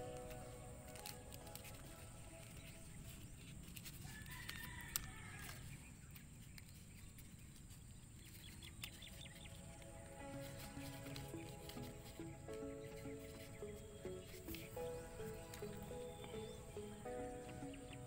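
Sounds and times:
soft background music: 0.0 - 18.0
rooster crowing faintly: 3.9 - 5.8.

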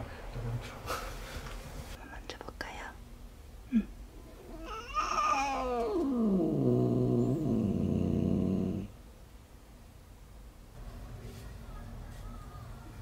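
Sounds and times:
cat yowling into a low growl: 4.4 - 7.8.

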